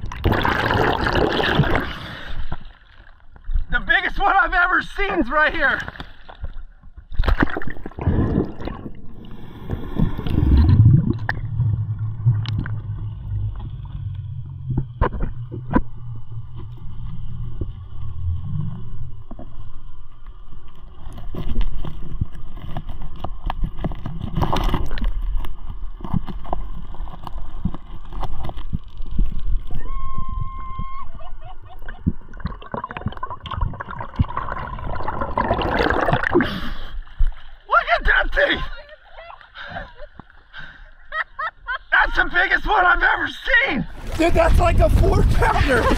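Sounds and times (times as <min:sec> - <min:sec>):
water splashing: 0:00.0 - 0:29.9, 0:31.4 - 0:39.2, 0:43.8 - 0:45.9
underwater gurgling and sloshing: 0:00.0 - 0:37.7
low steady hum: 0:05.9 - 0:37.7
underwater clicks and pops: 0:06.0 - 0:08.9, 0:09.7 - 0:16.9, 0:21.0 - 0:29.8, 0:32.0 - 0:36.4.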